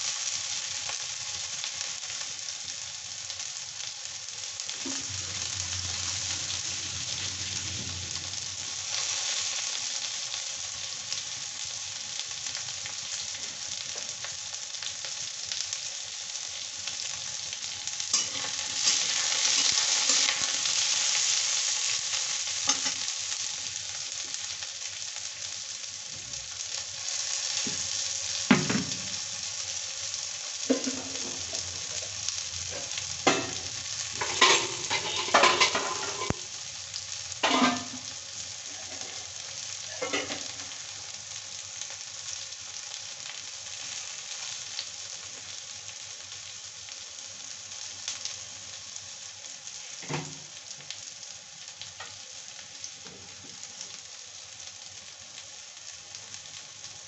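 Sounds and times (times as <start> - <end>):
vegetables sizzling in oil: 0.0 - 57.0
metal spatula scraping a pan: 18.1 - 21.4, 34.2 - 36.4.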